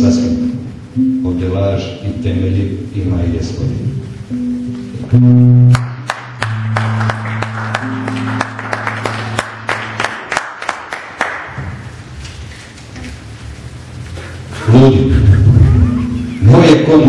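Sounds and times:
acoustic guitar low notes: 0:00.0 - 0:10.6, 0:11.5 - 0:17.0
audience clapping: 0:05.7 - 0:12.0.

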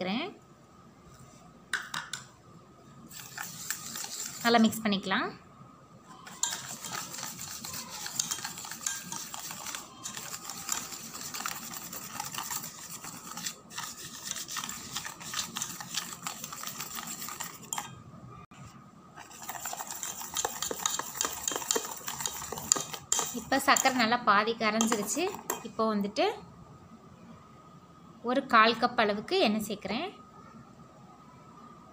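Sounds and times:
whisk beating in metal bowl: 0:03.1 - 0:04.6, 0:06.2 - 0:17.9, 0:19.2 - 0:24.1, 0:24.7 - 0:25.7.

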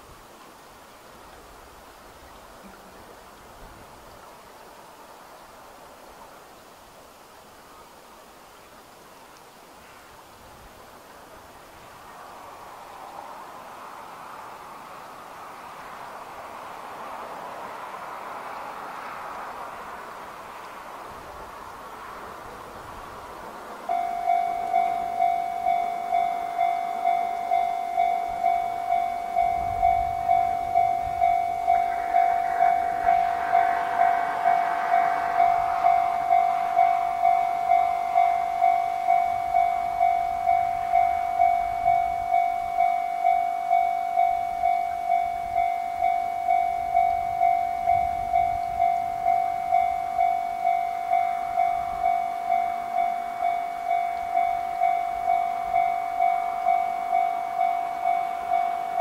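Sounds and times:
faint train rumble: 0:00.0 - 0:59.0
level crossing warning bell: 0:23.8 - 0:59.0.

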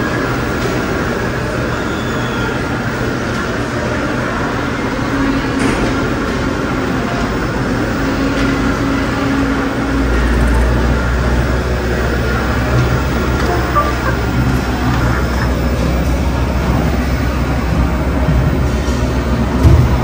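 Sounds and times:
mechanical rumble and hum: 0:10.0 - 0:20.0.

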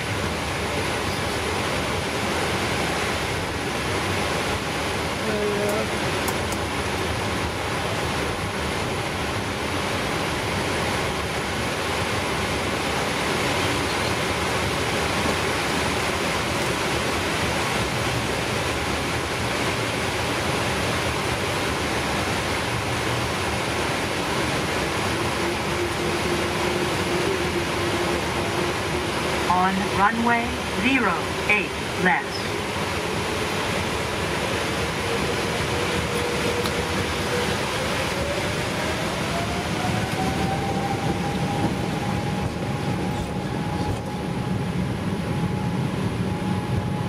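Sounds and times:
jet engines at taxi power: 0:00.0 - 0:47.0.

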